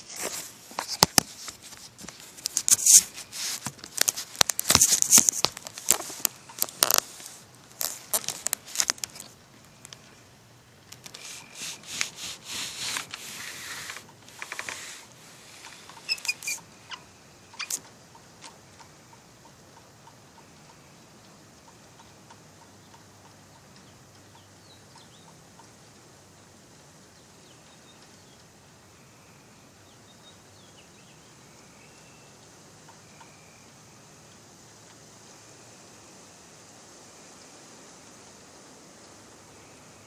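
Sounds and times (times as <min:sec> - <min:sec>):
clicks and crackles on microphone: 0:00.0 - 0:10.0
soft hiss: 0:00.0 - 0:40.0.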